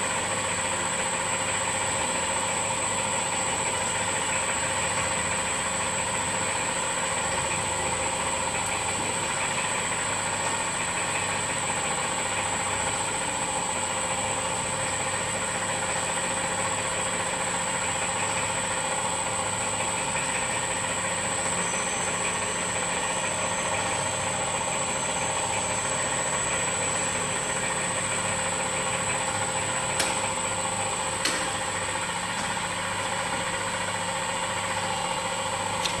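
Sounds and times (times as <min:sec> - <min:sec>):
machine hum with high whine: 0:00.0 - 0:36.0
sharp clicks: 0:35.8 - 0:36.0.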